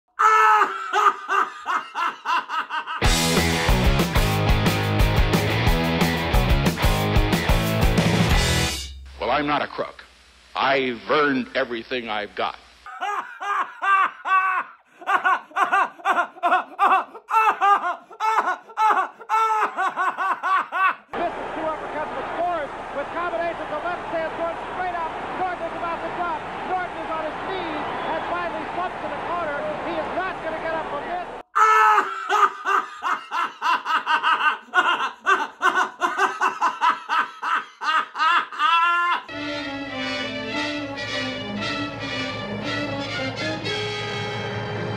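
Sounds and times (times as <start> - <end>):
man laughing loudly: 0.2 - 3.2, 12.9 - 21.2, 31.6 - 39.3.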